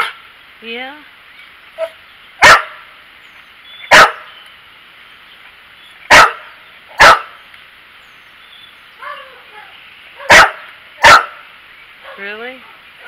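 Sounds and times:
dog barking: 1.8 - 2.8, 3.9 - 4.3, 6.1 - 7.4, 9.0 - 11.4, 12.0 - 12.8.

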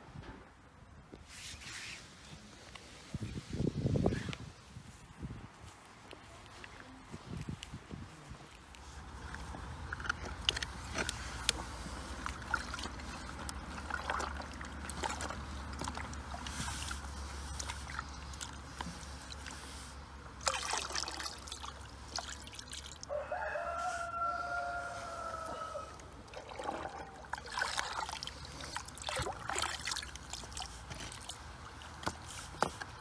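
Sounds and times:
water sloshing in plastic bowl: 9.0 - 23.1, 25.9 - 33.0
stream water running over rocks: 9.0 - 23.2, 26.0 - 33.0
water being poured out: 9.8 - 23.1, 26.0 - 32.6.

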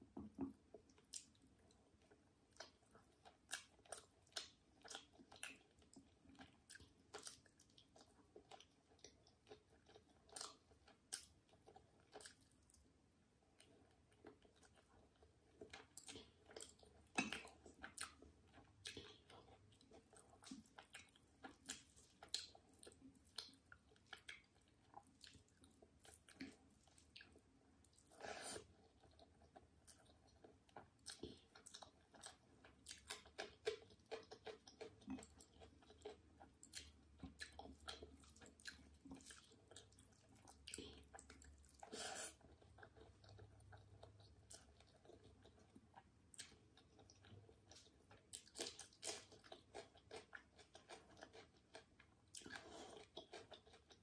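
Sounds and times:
wet chewing: 13.6 - 54.0.

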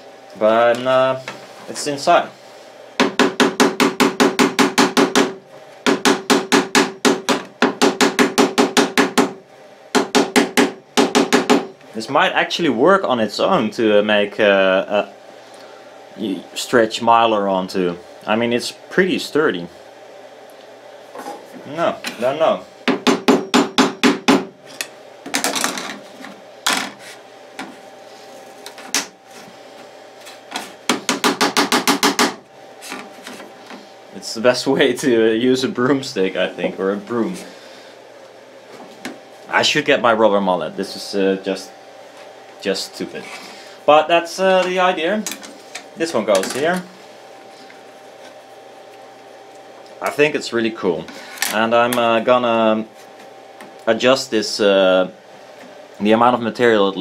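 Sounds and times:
rapid hammer tapping with hollow ring: 3.0 - 11.7, 22.9 - 24.5, 30.9 - 32.4.

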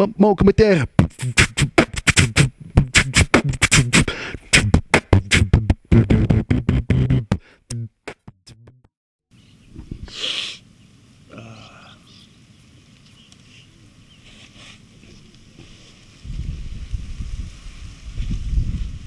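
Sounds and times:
man beatboxing: 0.6 - 8.9
short hiss: 10.0 - 10.7, 14.2 - 16.4.

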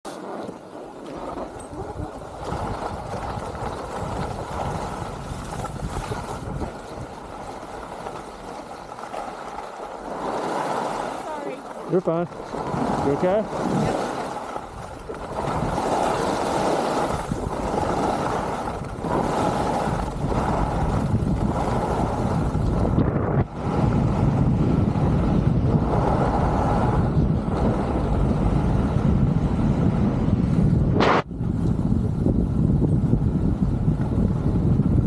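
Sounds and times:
skis sliding on snow: 0.1 - 24.4, 25.8 - 28.0
wind rushing over microphone: 1.1 - 8.6, 9.9 - 35.0.

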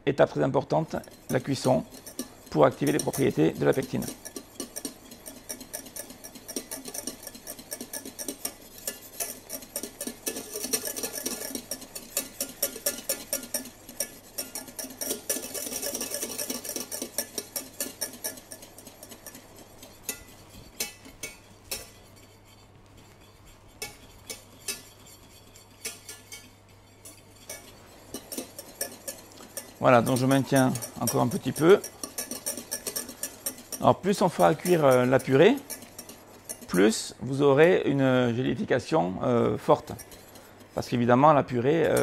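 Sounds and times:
whisk clicking against metal pan: 0.3 - 42.0.

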